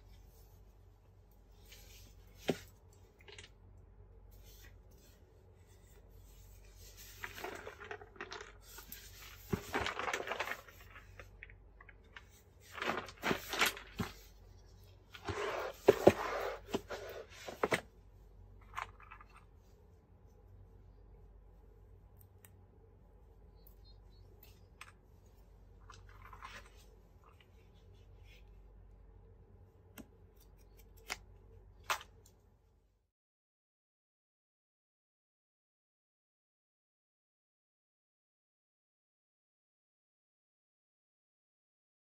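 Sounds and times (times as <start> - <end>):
paper rustling and crinkling: 4.4 - 17.9.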